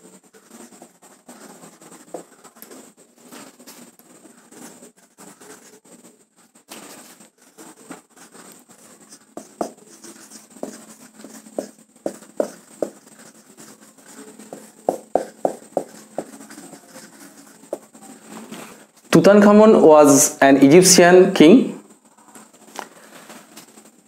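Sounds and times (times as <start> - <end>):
marker pen writing on whiteboard: 0.4 - 3.0, 7.4 - 18.2.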